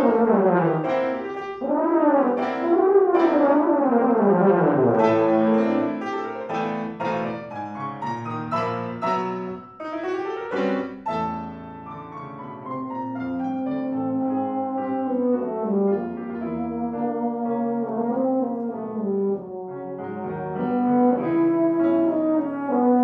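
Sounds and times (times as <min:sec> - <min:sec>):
piano chords: 0:00.0 - 0:23.0.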